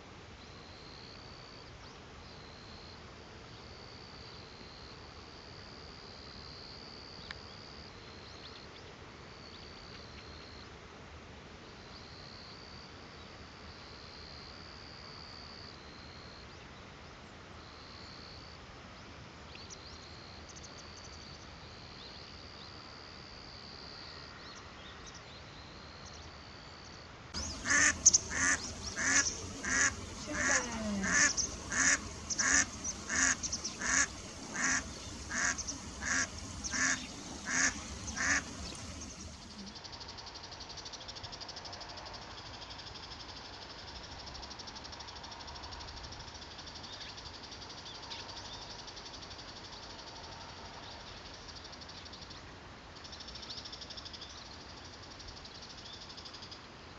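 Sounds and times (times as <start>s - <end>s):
duck quacking loudly: 27.4s - 39.5s.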